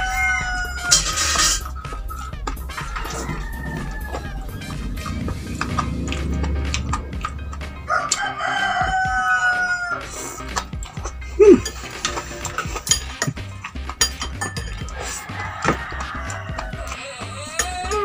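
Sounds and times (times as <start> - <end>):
rooster crowing: 0.0 - 10.8, 14.9 - 18.0
brief loud falling sound: 3.5 - 10.1
plates clinking: 10.6 - 18.0.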